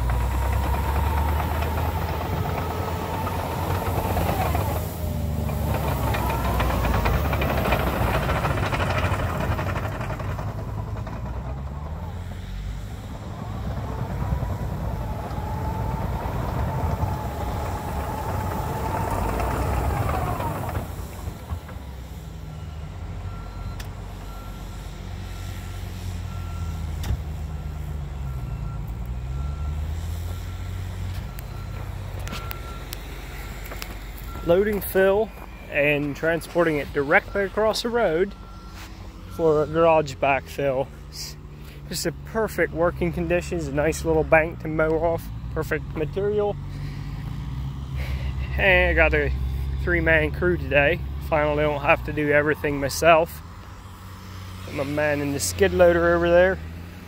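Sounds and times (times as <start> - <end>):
diesel engine revving: 0.0 - 57.0
engine whine: 0.0 - 57.0
reversing alarm beeping: 26.3 - 40.2.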